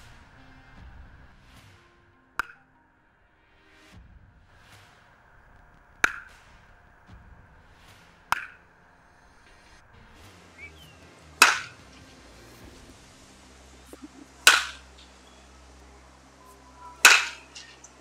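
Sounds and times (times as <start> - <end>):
baseball bat cracking ball: 4.8 - 9.0, 10.2 - 12.0, 13.9 - 15.1, 17.0 - 17.9.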